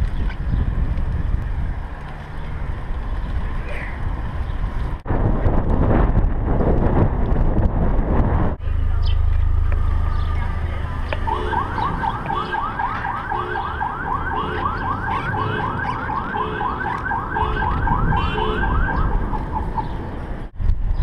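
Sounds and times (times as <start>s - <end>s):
low wind: 0.0s - 21.0s
traffic rumble: 0.0s - 21.0s
electronic siren rising sweeps: 8.6s - 19.9s.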